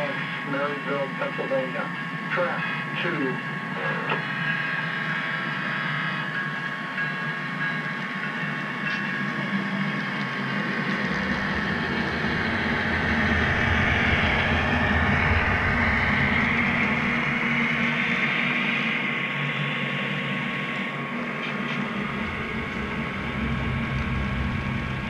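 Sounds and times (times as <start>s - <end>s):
model train rolling rumble: 6.1s - 19.3s, 21.1s - 25.0s.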